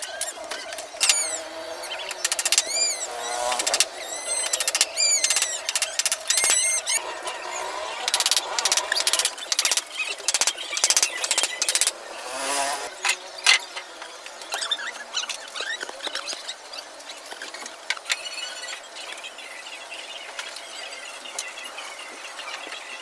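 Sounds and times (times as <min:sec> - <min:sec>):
high-pitched squeaky chirps: 0:00.0 - 0:12.5, 0:14.5 - 0:16.6.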